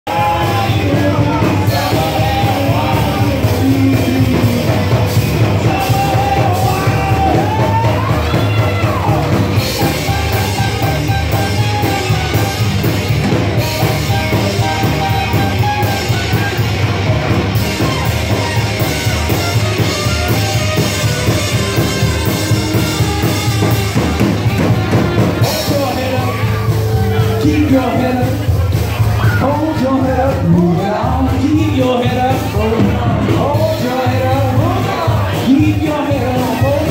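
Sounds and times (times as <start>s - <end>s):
drums keeping a beat: 0.0s - 36.9s
saxophone melody: 0.1s - 28.5s
live swing band playing: 0.1s - 36.9s.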